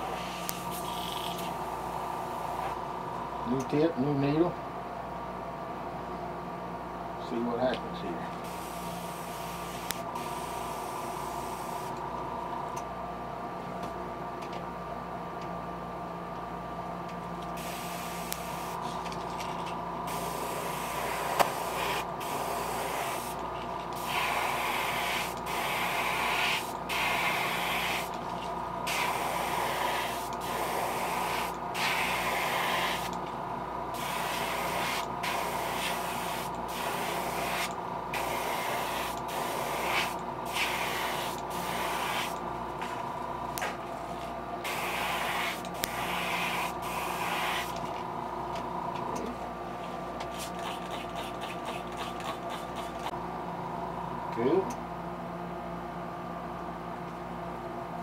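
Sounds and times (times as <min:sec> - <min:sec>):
faint steady hum: 0:00.0 - 0:58.0
airbrush hissing bursts: 0:08.4 - 0:11.9, 0:17.6 - 0:18.8, 0:20.1 - 0:23.4, 0:24.0 - 0:28.1, 0:28.8 - 0:33.1, 0:34.0 - 0:42.4, 0:44.6 - 0:47.8.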